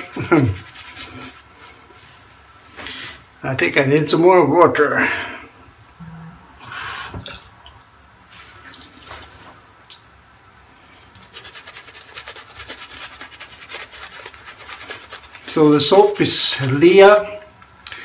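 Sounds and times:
brush scrubbing lather on face: 0.0s - 2.6s, 11.2s - 17.3s
tap water splashing: 7.1s - 7.8s, 8.6s - 10.1s.

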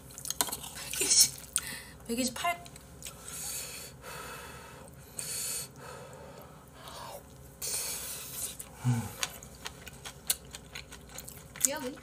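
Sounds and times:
man chewing: 0.0s - 1.6s, 2.7s - 4.0s, 4.8s - 12.0s
breathing through nose: 3.2s - 9.2s.

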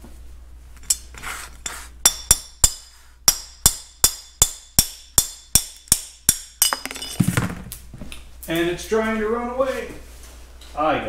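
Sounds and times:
hammer tapping metal punch: 2.1s - 7.2s
handling of metal part: 6.6s - 7.7s.

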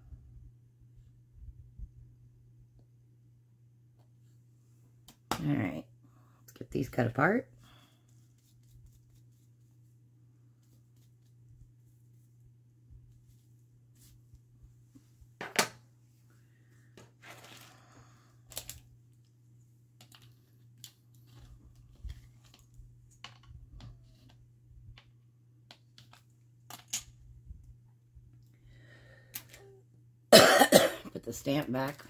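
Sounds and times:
steady low hum: 0.0s - 17.1s.

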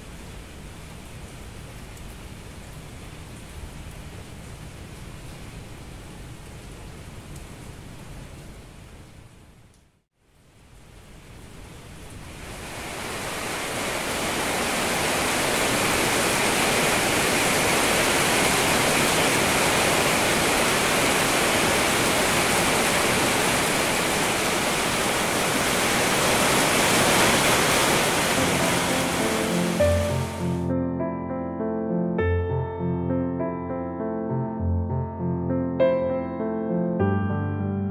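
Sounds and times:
heavy rain: 0.0s - 30.7s
soft music: 28.3s - 37.9s.

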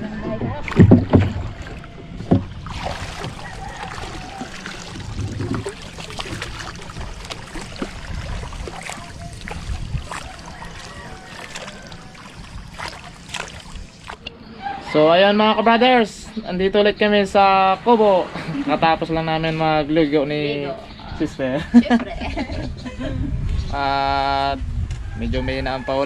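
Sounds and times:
water splashing around boat: 0.0s - 14.4s, 17.3s - 19.7s
water dripping: 0.7s - 14.4s.

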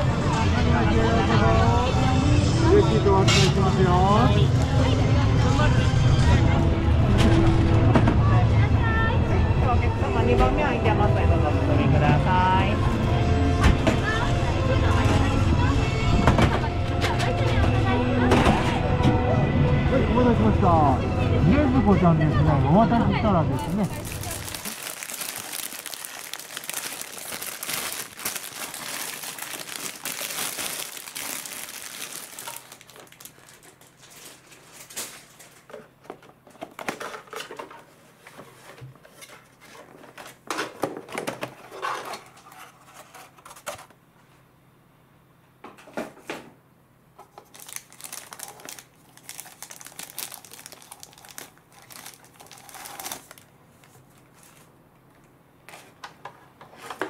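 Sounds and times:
plastic wrapping crinkling: 23.6s - 35.1s, 47.3s - 54.7s.

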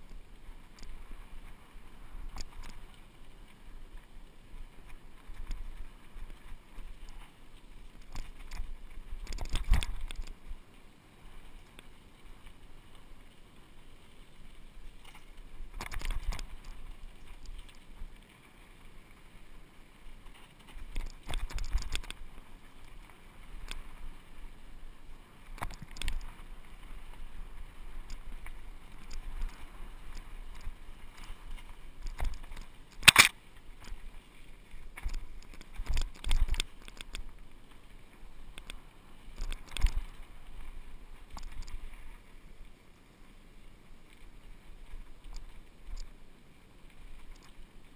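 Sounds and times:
bike tyres rushing on dirt: 0.0s - 47.9s
bike rattling over bumps: 20.2s - 24.6s.

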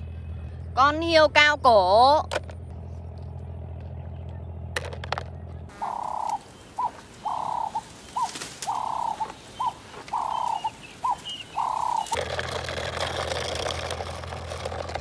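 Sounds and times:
animal calling with chirps: 5.7s - 12.2s.

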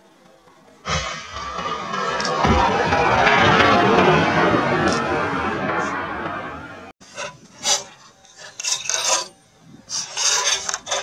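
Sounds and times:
steady noisy rush: 0.9s - 7.0s.

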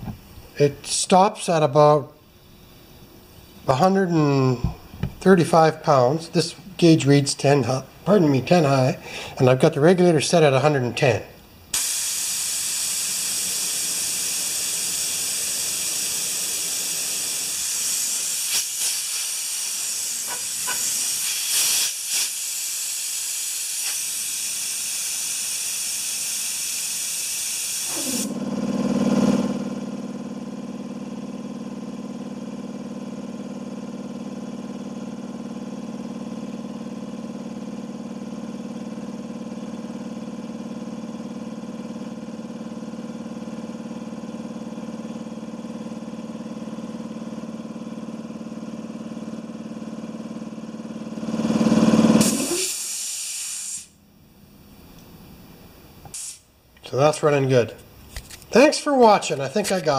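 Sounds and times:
compressor motor running: 2.6s - 9.6s, 11.6s - 55.1s, 55.7s - 59.9s
compressed air hissing: 11.7s - 28.4s, 52.2s - 54.0s, 56.0s - 56.5s.

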